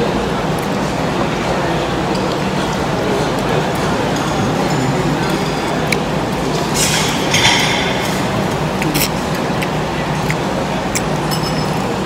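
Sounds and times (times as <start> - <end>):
room noise: 0.0 - 12.0
cutlery and dishes clinking: 3.8 - 9.6, 11.0 - 12.0.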